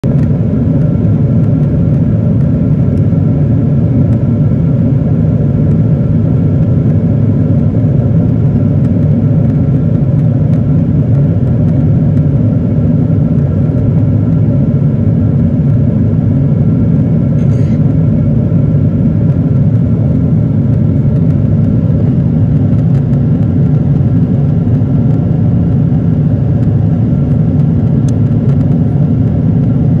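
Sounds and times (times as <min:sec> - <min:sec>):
airplane cabin rumble: 0:00.0 - 0:30.0
faint steady whine: 0:00.0 - 0:30.0.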